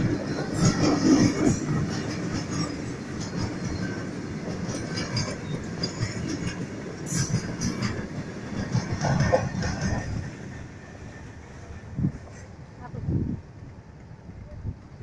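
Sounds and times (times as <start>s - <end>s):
wheels and couplings clacking: 0.0s - 11.2s
steel wheels rumbling on rails: 0.0s - 15.0s.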